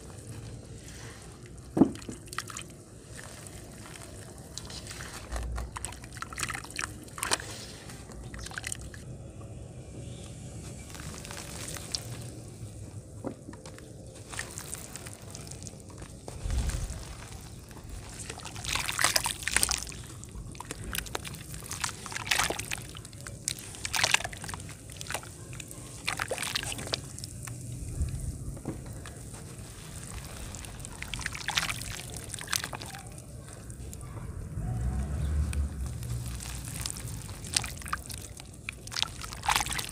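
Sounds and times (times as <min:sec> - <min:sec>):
hands squeezing wet mud: 0:00.0 - 0:09.0, 0:10.1 - 0:39.9
water sloshing and squelching: 0:00.0 - 0:09.0, 0:10.7 - 0:39.9
water splashing: 0:14.2 - 0:28.3, 0:29.2 - 0:39.9.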